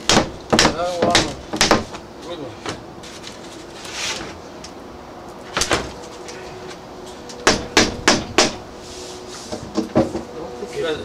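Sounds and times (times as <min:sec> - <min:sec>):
window sash knocks and clunks: 0:00.0 - 0:02.0, 0:05.5 - 0:06.0, 0:07.4 - 0:08.6
brushing rustle: 0:03.0 - 0:04.4, 0:08.7 - 0:11.0.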